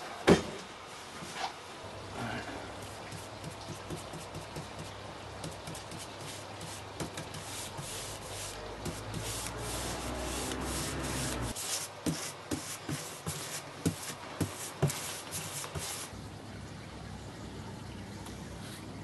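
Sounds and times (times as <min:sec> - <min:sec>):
paintbrush scrubbing wood: 0:02.9 - 0:16.1.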